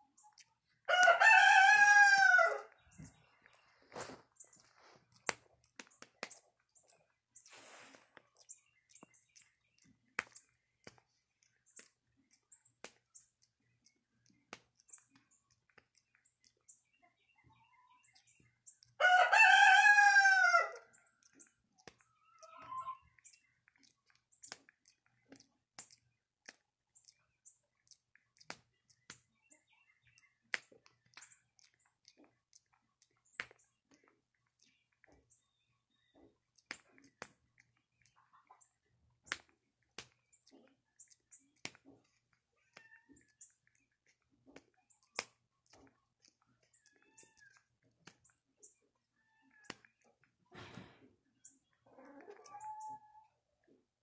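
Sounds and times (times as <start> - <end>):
rooster crowing: 0.9 - 2.7, 19.0 - 20.8
faint clicks and rustles: 2.7 - 16.7.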